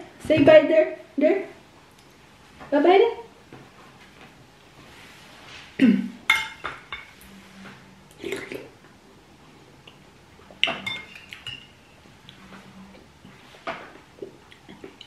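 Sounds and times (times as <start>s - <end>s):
cutlery clinking on plates: 6.3s - 7.2s, 10.6s - 11.8s.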